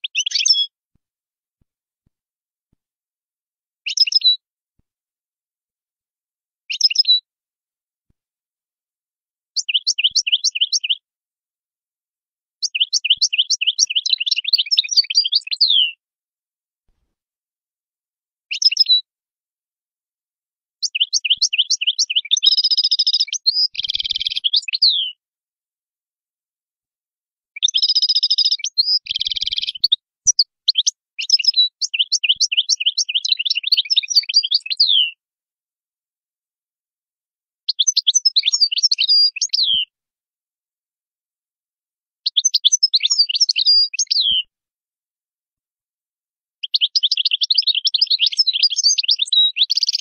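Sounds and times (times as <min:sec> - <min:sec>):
bird twittering song: 0:00.0 - 0:00.7, 0:03.8 - 0:04.4, 0:06.7 - 0:07.2, 0:09.6 - 0:11.0, 0:12.6 - 0:16.0, 0:18.5 - 0:19.0, 0:20.8 - 0:25.2, 0:27.6 - 0:35.1, 0:37.7 - 0:39.9, 0:42.3 - 0:44.5, 0:46.6 - 0:50.0.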